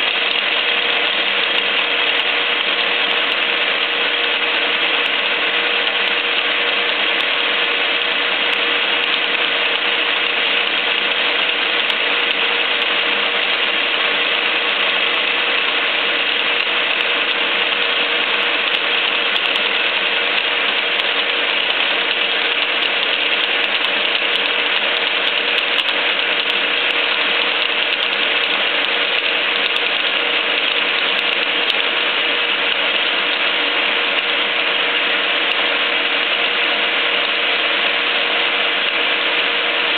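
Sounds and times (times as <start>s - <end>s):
milling machine cutting steel: 0.0s - 39.9s.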